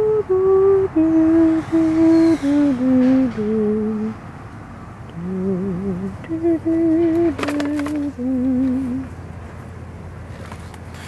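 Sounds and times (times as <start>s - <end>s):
person humming a slow tune: 0.0s - 4.2s, 5.1s - 9.2s
quick clicks: 7.0s - 8.8s.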